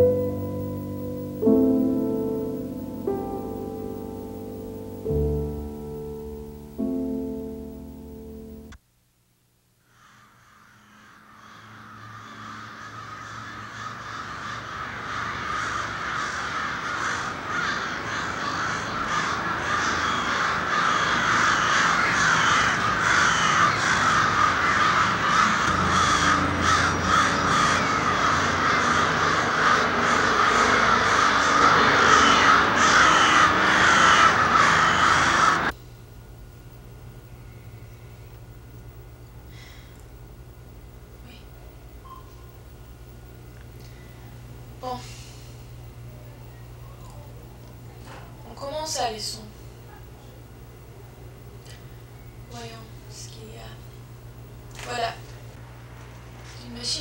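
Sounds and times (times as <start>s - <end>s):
flock of birds calling: 9.9s - 35.8s.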